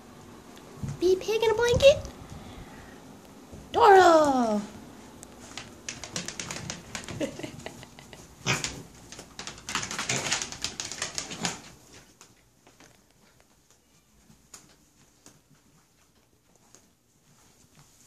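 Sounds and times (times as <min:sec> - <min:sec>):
pig trotters clicking on wood floor: 0:05.3 - 0:16.9
pig grunts: 0:08.4 - 0:08.8.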